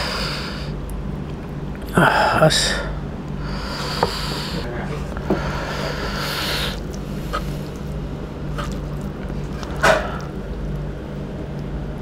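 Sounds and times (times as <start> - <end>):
steady low hum: 0.0 - 12.0
hissing rush of noise: 1.9 - 4.7
wet squishing of food by hand: 5.0 - 12.0.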